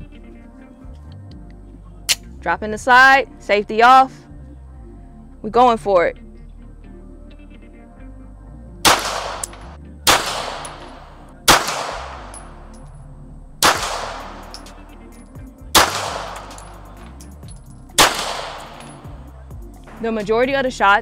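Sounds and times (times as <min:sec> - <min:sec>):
pistol shots: 0:08.8 - 0:12.7, 0:13.6 - 0:15.0, 0:15.7 - 0:17.2, 0:18.0 - 0:19.2.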